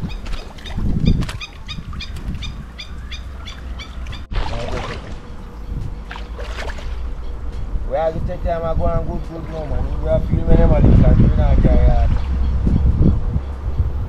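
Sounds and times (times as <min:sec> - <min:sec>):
bird chirping rapidly: 0:00.0 - 0:04.3
wind and water rumble: 0:00.0 - 0:14.0.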